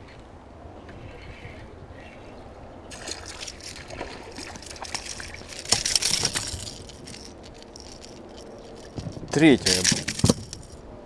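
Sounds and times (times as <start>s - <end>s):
water splashing and sloshing: 0.0s - 10.8s.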